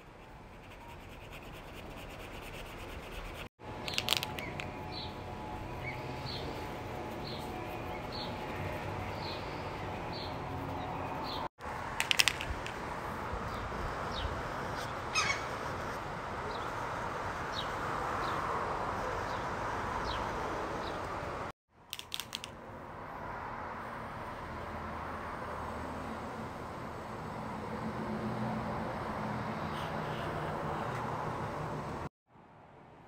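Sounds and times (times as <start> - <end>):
marker tip rubbing on paper: 0.5 - 4.3
sharp clicks: 21.9 - 22.6.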